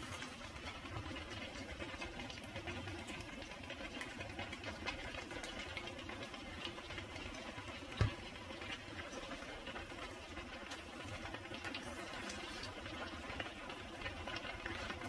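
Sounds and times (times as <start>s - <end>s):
bubbling sauce crackling: 0.0s - 15.0s.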